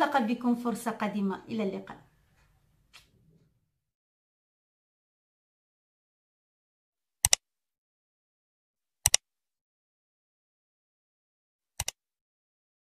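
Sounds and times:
computer mouse double-clicks: 0:07.2 - 0:07.4, 0:09.0 - 0:09.2, 0:11.8 - 0:12.0.

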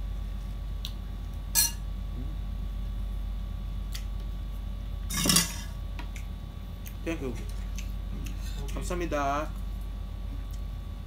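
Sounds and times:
spoon and plates clinking: 0:01.6 - 0:01.8.

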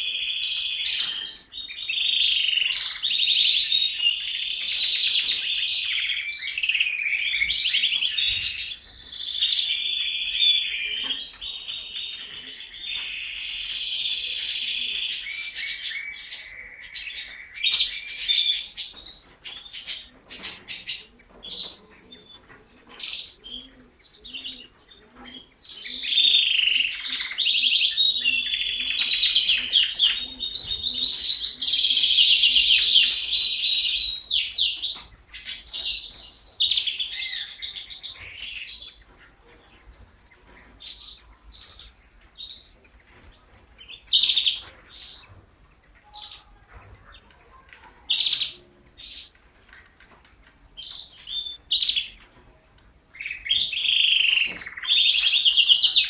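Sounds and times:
canary singing trills: 0:00.0 - 0:56.0.

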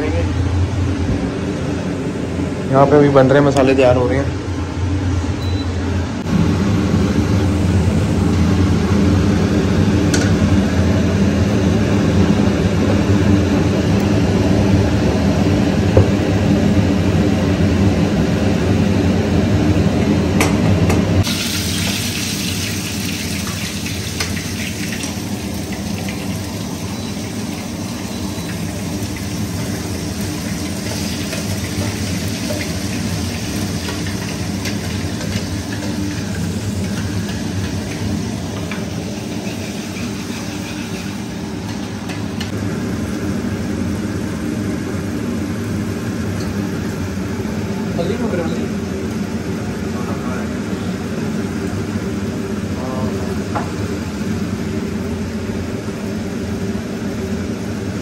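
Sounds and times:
paste sizzling in hot oil: 0:21.2 - 0:42.0.

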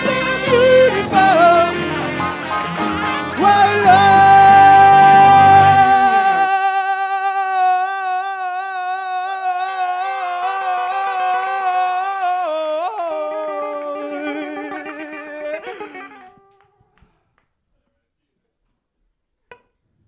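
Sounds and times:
band low accompaniment: 0:00.0 - 0:06.4
man singing long wavering note: 0:03.4 - 0:16.2.

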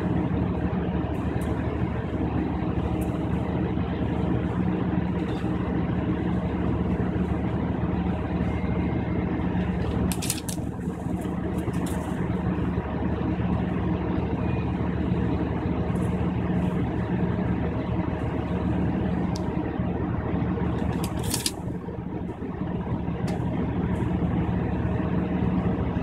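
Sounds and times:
diesel engine running: 0:00.0 - 0:26.0
train wheel and track noise: 0:00.0 - 0:26.0
rattle of clicks: 0:10.1 - 0:10.6, 0:20.8 - 0:21.6.

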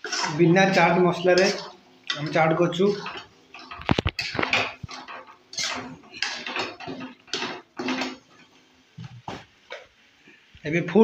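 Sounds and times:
metal spoon scraping a pan: 0:00.0 - 0:08.6.

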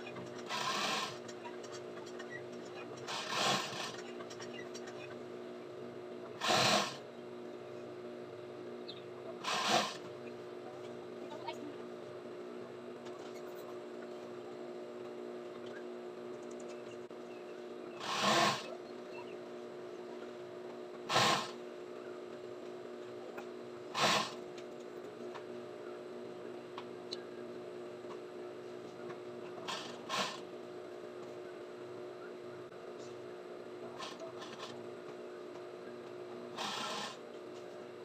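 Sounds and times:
sewing machine motor humming: 0:00.1 - 0:01.8, 0:03.0 - 0:04.2, 0:06.4 - 0:07.0, 0:09.4 - 0:10.1, 0:18.0 - 0:18.7, 0:29.6 - 0:30.4, 0:36.5 - 0:37.2
sewing machine stitching: 0:00.2 - 0:01.4, 0:03.0 - 0:04.1, 0:06.4 - 0:07.0, 0:09.4 - 0:10.0, 0:18.0 - 0:18.7, 0:23.9 - 0:24.4, 0:29.6 - 0:30.4, 0:36.6 - 0:37.2.

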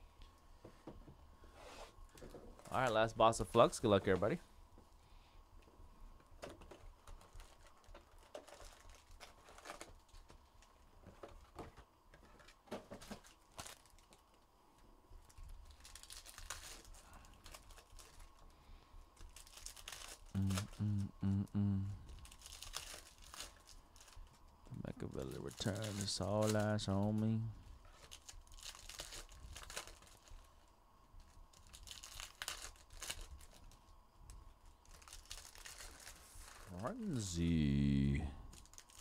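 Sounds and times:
foil wrappers crinkling and tearing: 0:06.6 - 0:11.6, 0:12.2 - 0:14.4, 0:15.2 - 0:18.6, 0:19.2 - 0:20.8, 0:22.1 - 0:37.5, 0:38.5 - 0:39.0.

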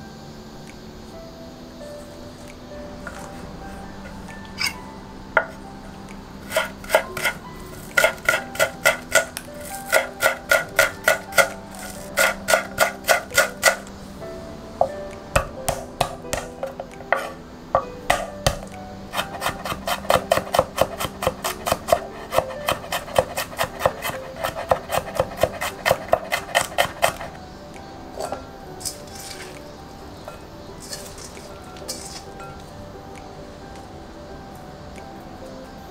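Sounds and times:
light background music: 0:00.0 - 0:35.9
knife chopping on wooden board: 0:06.5 - 0:13.9, 0:15.4 - 0:17.4, 0:18.1 - 0:27.4.

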